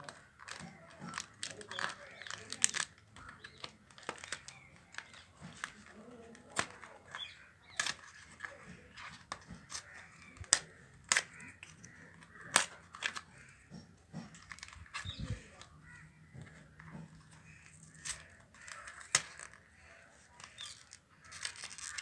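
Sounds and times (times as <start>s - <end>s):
faint rustling of handling: 0.0s - 22.0s.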